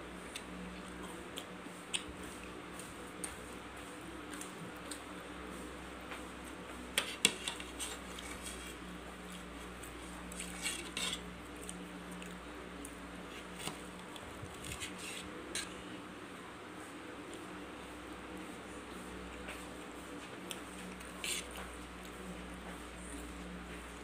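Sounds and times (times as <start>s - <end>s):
knife and fork scraping plate: 10.3s - 11.3s, 14.6s - 15.8s.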